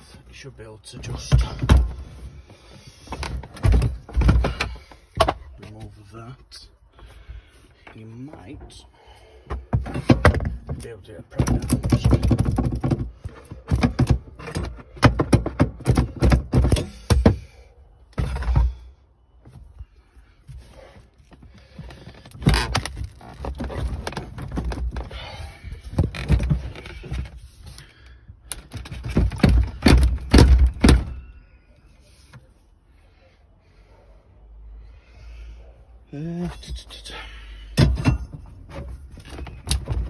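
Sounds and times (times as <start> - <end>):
seat knocks clunks and scraping: 0.9 - 6.4, 9.4 - 17.5, 20.5 - 27.8, 28.6 - 31.2, 37.8 - 40.0.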